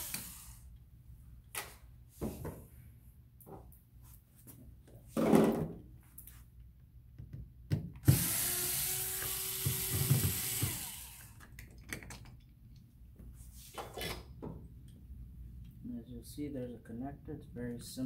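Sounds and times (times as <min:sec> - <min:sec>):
cordless drill running: 0:00.0 - 0:00.6, 0:08.0 - 0:11.4.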